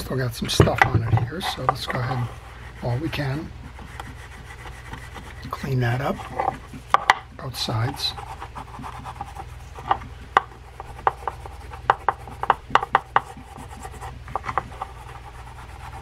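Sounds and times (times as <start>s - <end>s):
hand tool scraping metal: 1.0s - 4.0s.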